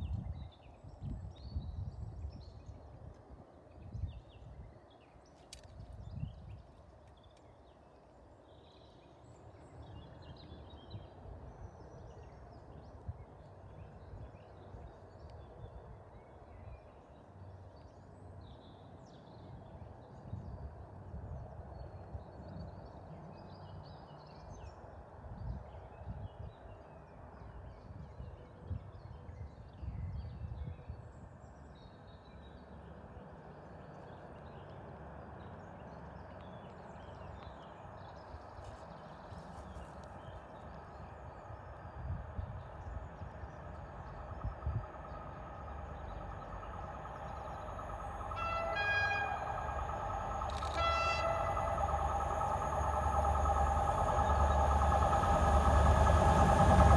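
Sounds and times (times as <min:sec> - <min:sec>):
low uneven rumble: 0:33.1 - 0:56.9
birds chirping: 0:35.4 - 0:56.9.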